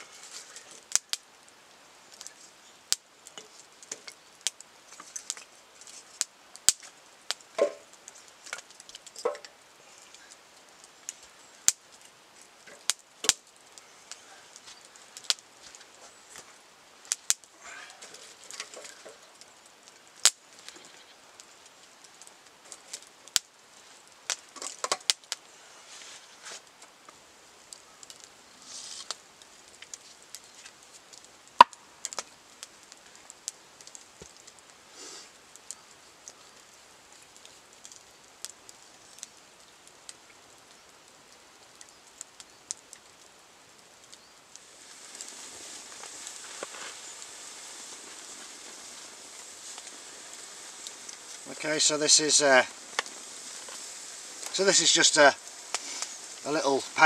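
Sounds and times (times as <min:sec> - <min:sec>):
wood fire crackling and popping: 0:00.0 - 0:57.0
firewood knocking: 0:06.7 - 0:09.6, 0:24.3 - 0:25.2, 0:31.6 - 0:32.3.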